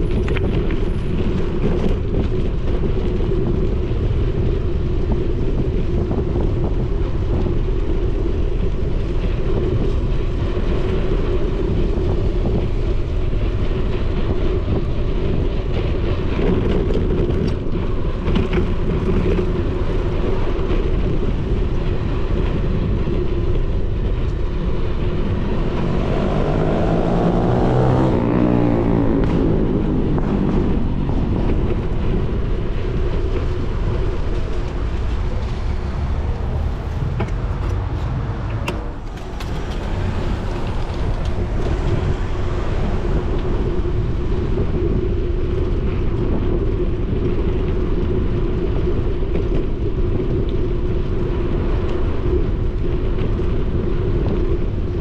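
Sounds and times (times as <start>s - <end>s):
bicycle rolling noise: 0.0s - 55.0s
wind rush on microphone: 0.0s - 55.0s
vehicle engine accelerating: 23.7s - 47.9s.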